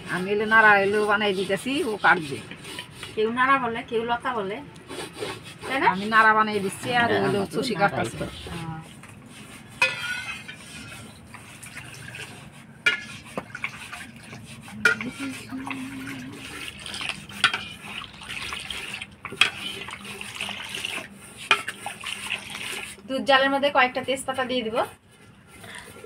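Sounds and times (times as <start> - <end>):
liquid sloshing in metal pot: 0.0 - 3.3, 7.9 - 23.4
metal utensils clinking: 9.8 - 10.6, 14.8 - 15.8.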